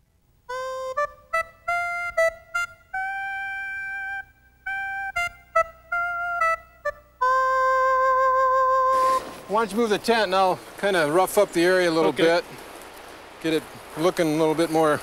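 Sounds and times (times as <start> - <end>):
melody of clean held notes: 0.5 - 9.2.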